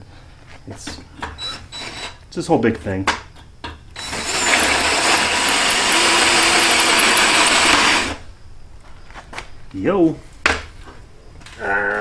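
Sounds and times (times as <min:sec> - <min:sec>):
cordless drill boring metal: 0:04.0 - 0:08.2.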